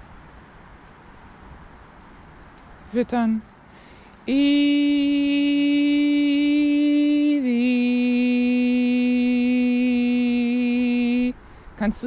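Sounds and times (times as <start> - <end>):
person singing a long word: 4.3 - 11.4.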